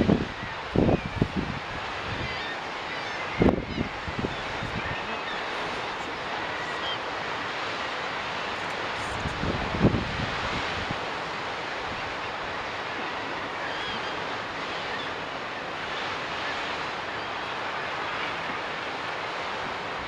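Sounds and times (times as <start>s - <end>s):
sea surf breaking: 0.0s - 20.0s
faint seabird calls: 0.2s - 7.4s, 11.9s - 18.8s.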